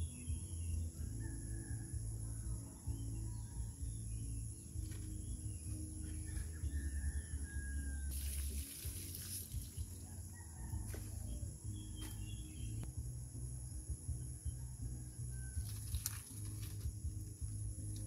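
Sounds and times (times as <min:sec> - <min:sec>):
birds chirping: 0:00.0 - 0:18.0
high insect whine: 0:00.0 - 0:18.0
water splashing from pot: 0:08.1 - 0:09.8.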